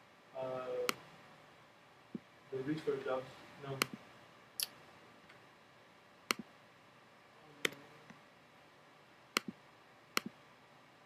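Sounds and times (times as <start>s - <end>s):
computer mouse clicking: 6.3s - 6.5s.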